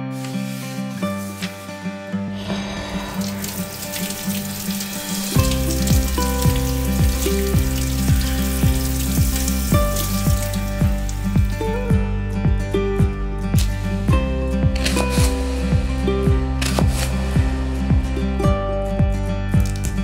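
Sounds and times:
background music: 0.0s - 20.0s
tap water running over greens: 0.1s - 1.9s, 3.2s - 12.0s, 13.6s - 17.2s
steady drum beat: 5.4s - 19.7s.

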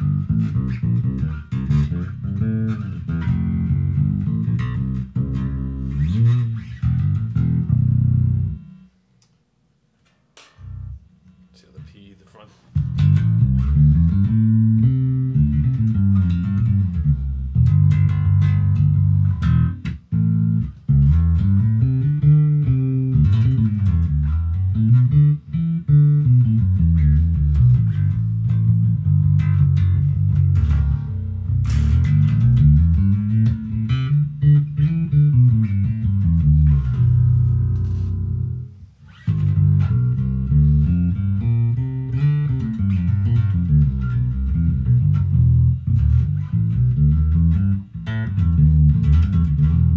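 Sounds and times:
electric bass played fingerstyle: 0.0s - 49.9s.

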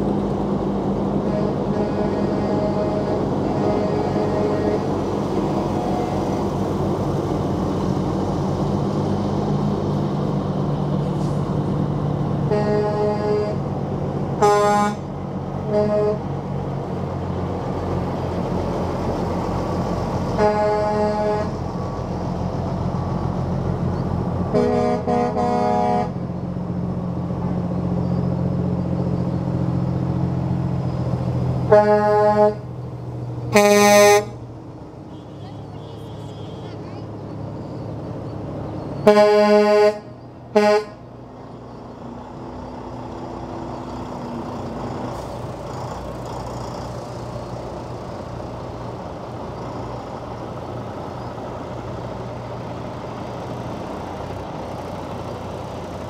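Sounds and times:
diesel trucks rolling past: 0.0s - 56.0s
truck air horn blasts: 1.2s - 5.0s, 12.5s - 13.7s, 14.4s - 16.3s, 20.4s - 21.6s, 24.5s - 26.2s, 31.6s - 32.7s, 33.5s - 34.4s, 35.0s - 36.9s, 39.0s - 41.1s.

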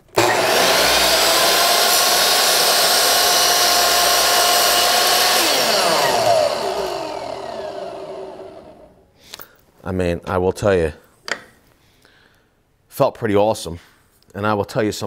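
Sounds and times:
miter saw cutting wood: 0.0s - 9.0s
saw blade spinning down: 0.0s - 9.0s.

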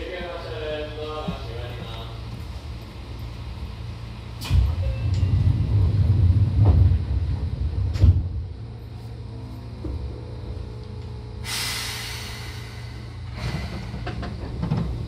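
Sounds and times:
electric train interior rumble: 0.0s - 15.0s.

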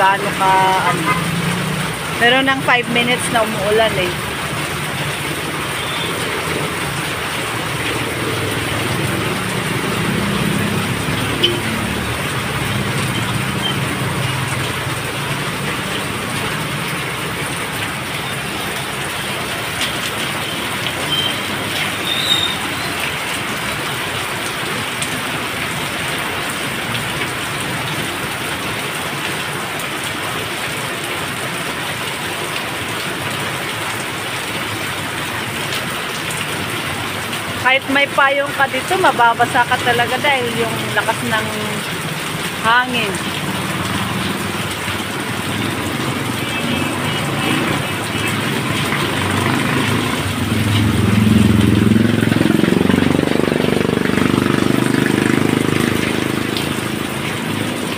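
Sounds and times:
passing vehicle engine: 0.0s - 22.0s, 39.4s - 57.9s
heavy rain falling: 0.0s - 57.9s
water streaming off a roof: 0.0s - 57.9s.

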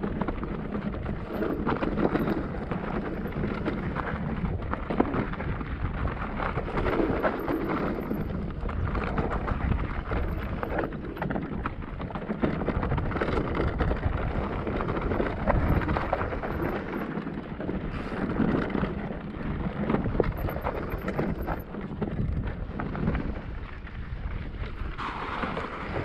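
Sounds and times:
bike knocking and rattling: 0.0s - 26.0s
wind rumbling on microphone: 0.0s - 26.0s.

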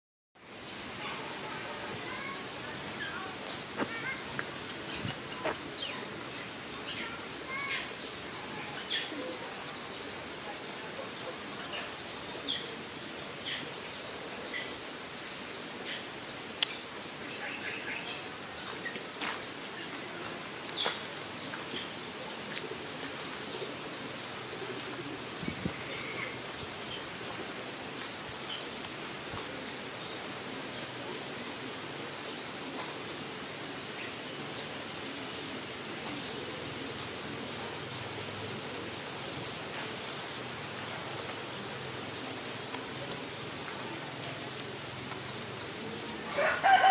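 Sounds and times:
steady hiss: 0.4s - 46.9s
small birds chirping: 0.5s - 46.9s.

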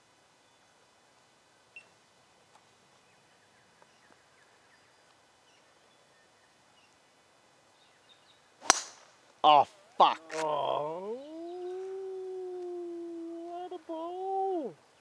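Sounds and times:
bird chirps: 1.7s - 2.0s
golf club striking ball: 8.6s - 9.2s.

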